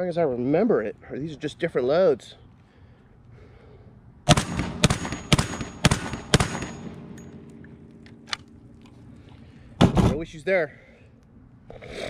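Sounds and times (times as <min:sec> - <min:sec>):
shotgun shots with echo: 0:04.3 - 0:08.3.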